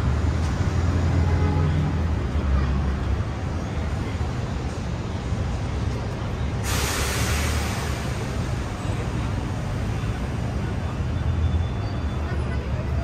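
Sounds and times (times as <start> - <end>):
rumble of street traffic: 0.0 - 13.0
air brakes hissing: 6.5 - 9.4.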